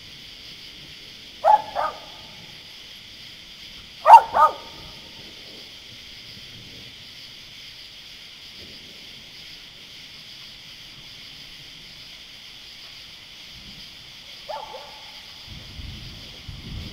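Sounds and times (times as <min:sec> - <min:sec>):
low thunder rumble: 0:00.0 - 0:12.4, 0:13.4 - 0:16.9
high-pitched outdoor night hiss: 0:00.0 - 0:16.9.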